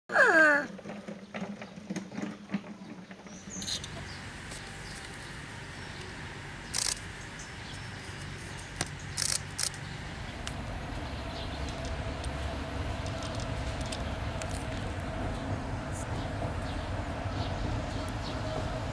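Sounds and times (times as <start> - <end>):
outdoor background hiss: 2.8 - 17.6.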